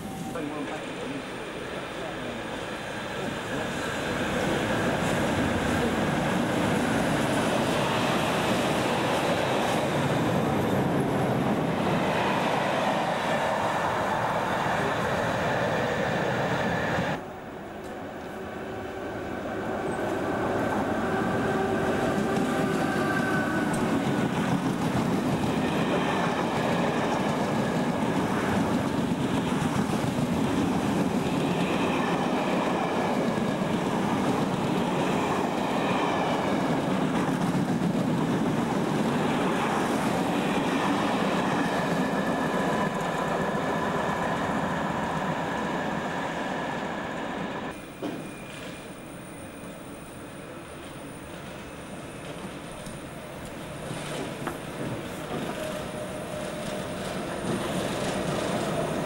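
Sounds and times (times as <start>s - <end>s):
train wheels rumbling on rail: 0.0s - 59.0s
thin high whining tones: 41.6s - 54.1s.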